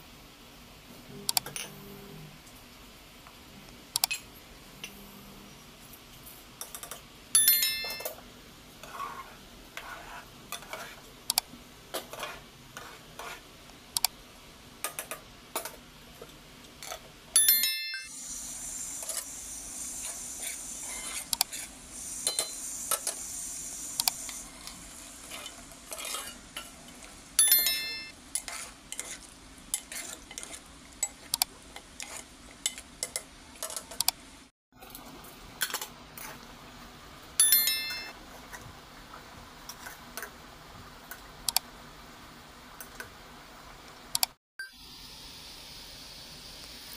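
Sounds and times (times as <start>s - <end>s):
spices sizzling in hot oil: 5.6s - 17.5s, 18.1s - 33.6s, 44.7s - 46.9s
metal spoon scraping pot: 24.6s - 26.7s, 27.6s - 31.2s.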